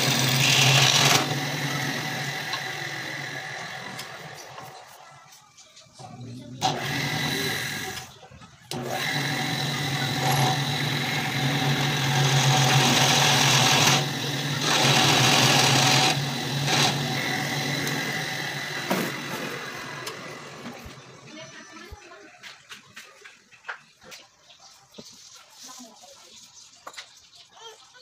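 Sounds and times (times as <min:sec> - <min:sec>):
drill bit boring into wood: 0:00.0 - 0:04.7, 0:06.6 - 0:08.1, 0:08.7 - 0:20.8
drill press motor hum: 0:00.0 - 0:04.8, 0:06.6 - 0:08.1, 0:08.7 - 0:21.2.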